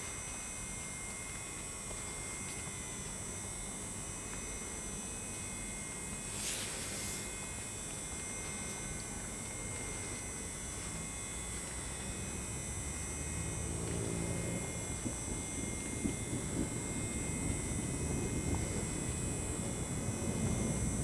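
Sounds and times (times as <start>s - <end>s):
electrical hum and buzz: 0.0s - 21.0s
low vehicle rumble: 12.1s - 21.0s.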